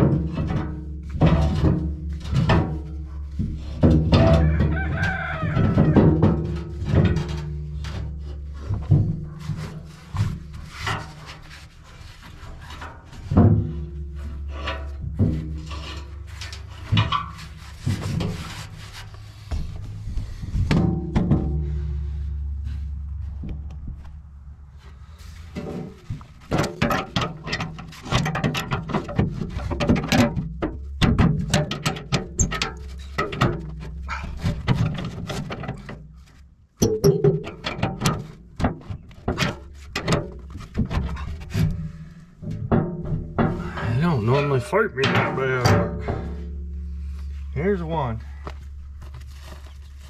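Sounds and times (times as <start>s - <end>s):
steel scraping and knocking: 0.0s - 50.0s
steady low hum: 13.8s - 26.4s, 40.4s - 50.0s.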